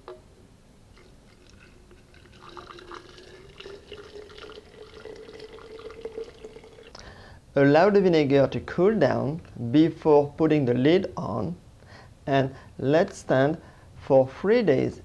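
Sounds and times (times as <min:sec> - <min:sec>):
liquid trickling into jar: 0:00.9 - 0:07.0
low rising tone of filling jar: 0:00.9 - 0:07.0.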